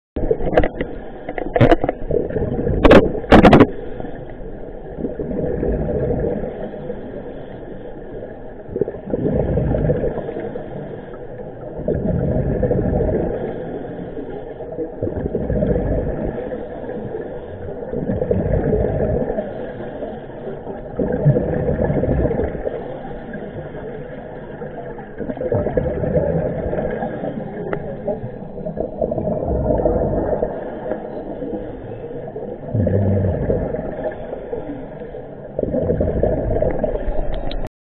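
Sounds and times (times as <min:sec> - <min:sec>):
bubbles rushing out: 0:01.4 - 0:03.8, 0:04.9 - 0:06.5, 0:08.7 - 0:10.4, 0:11.8 - 0:13.5, 0:15.0 - 0:16.5, 0:17.9 - 0:19.4, 0:20.9 - 0:22.8, 0:25.2 - 0:31.0, 0:32.6 - 0:34.2, 0:35.6 - 0:37.7.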